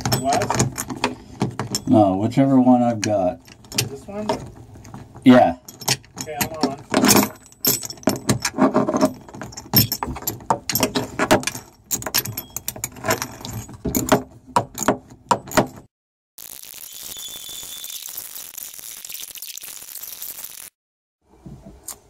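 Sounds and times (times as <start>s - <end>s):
metal clinking and rattling: 0.0s - 2.2s, 2.8s - 15.9s.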